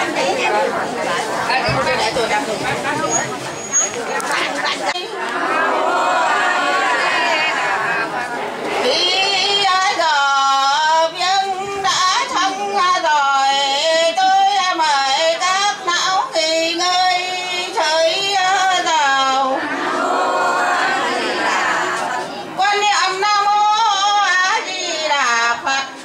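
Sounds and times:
woman singing a lament: 8.8 - 26.0.

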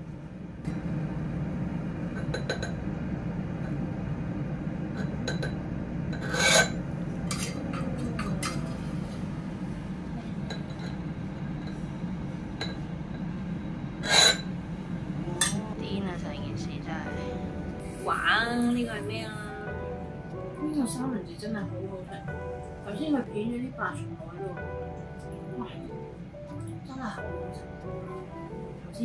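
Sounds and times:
steady low hum: 0.0 - 29.0
utensils clinking: 6.2 - 8.8, 10.4 - 11.8.

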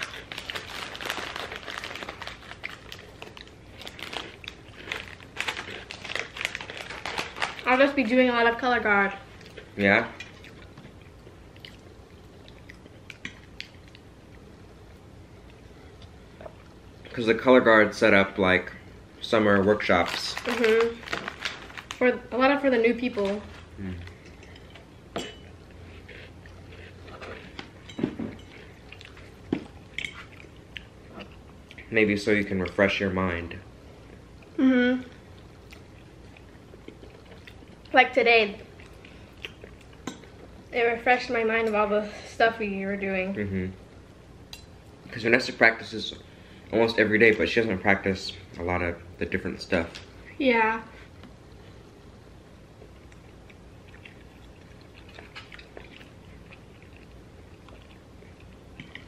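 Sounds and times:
plastic snack pouch crinkling: 0.0 - 7.8, 19.8 - 22.1
crunchy chewing: 25.7 - 27.8, 52.8 - 59.0.

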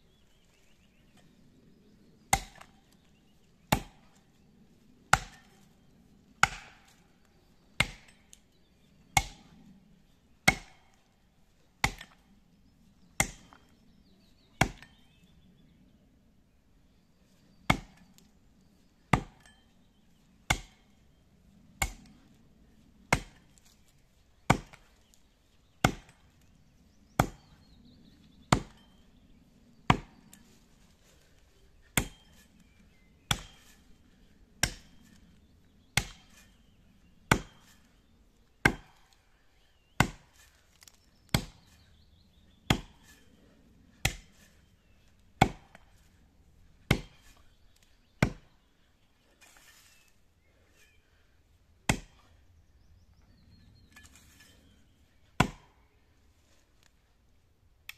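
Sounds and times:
axe chopping into tree trunk: 2.3 - 2.8, 5.1 - 5.6, 6.4 - 7.0, 7.8 - 8.2, 9.2 - 9.5, 10.4 - 10.9, 11.8 - 12.2, 14.6 - 15.0, 17.7 - 18.0, 19.1 - 19.5, 20.5 - 20.8, 21.8 - 22.1, 23.1 - 23.7, 24.5 - 24.9, 25.8 - 26.2, 27.2 - 27.6, 28.5 - 28.8, 29.9 - 30.3, 32.0 - 32.4, 33.3 - 33.8, 34.6 - 35.2, 36.0 - 36.6, 37.3 - 37.8, 38.6 - 39.0, 40.0 - 41.7, 42.6 - 43.2, 43.9 - 44.5, 45.4 - 46.0, 46.9 - 47.4, 48.2 - 48.5, 51.9 - 52.3, 55.4 - 55.8.

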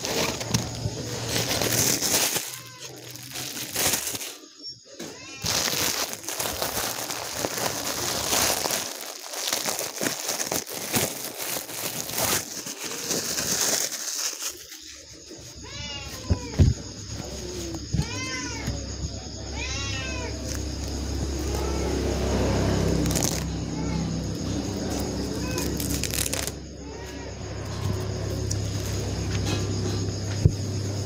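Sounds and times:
plastic bag crinkling: 0.0 - 15.6, 22.7 - 23.5, 24.4 - 26.6.

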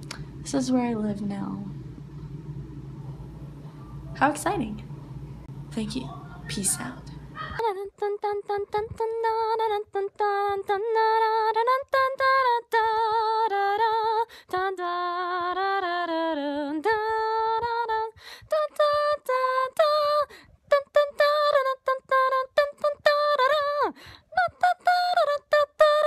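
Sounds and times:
woman singing unaccompanied: 5.8 - 26.0.

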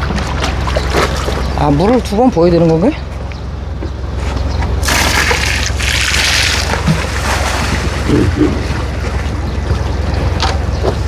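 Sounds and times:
low engine hum: 0.0 - 11.0
water gushing and splashing: 4.8 - 9.4.

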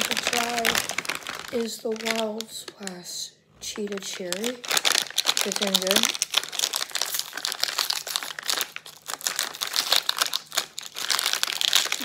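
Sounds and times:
plastic pouch crinkling: 0.0 - 12.0.

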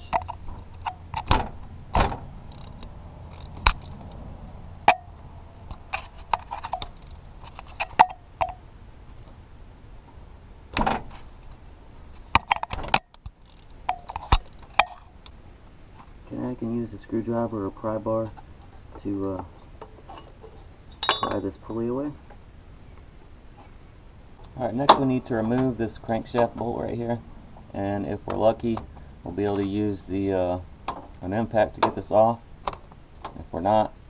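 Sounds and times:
ratchet metallic clicks: 2.5 - 4.2, 12.4 - 15.4.

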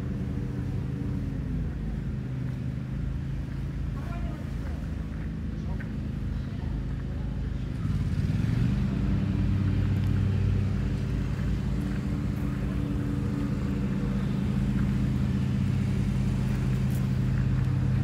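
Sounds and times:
engine running: 0.0 - 18.0.

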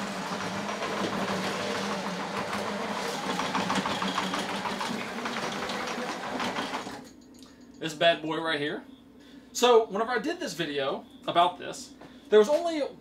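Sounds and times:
lawn mower petrol engine: 0.0 - 7.1.

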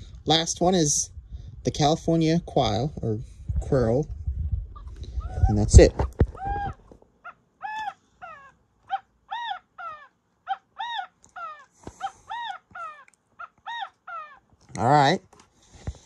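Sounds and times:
recorded quail calls from speaker: 4.8 - 14.9.

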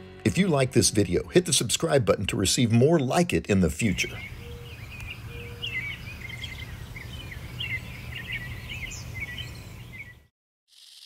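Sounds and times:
small birds chirping: 3.9 - 11.0.

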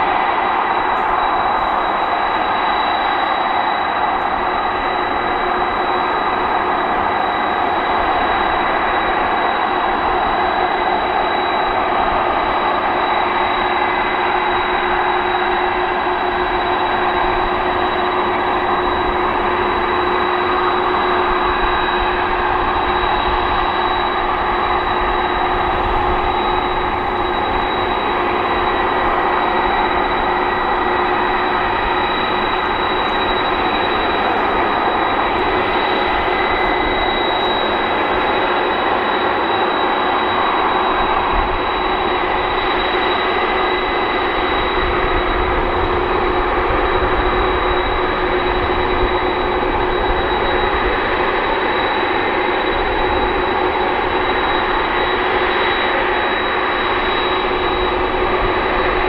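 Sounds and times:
high engine whistle: 0.0 - 59.0
jet engines idling: 0.0 - 59.0.

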